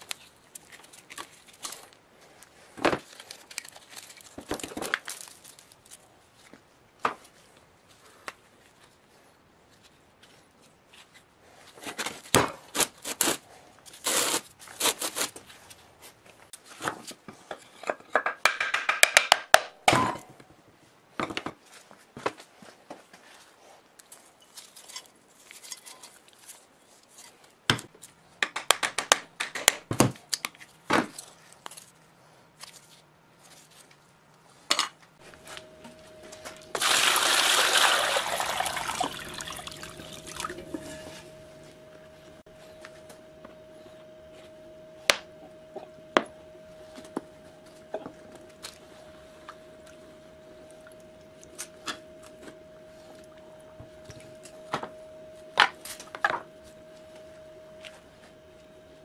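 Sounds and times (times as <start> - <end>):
faint steady hum: 22.6 - 59.0
water poured into plastic tub: 36.8 - 40.5.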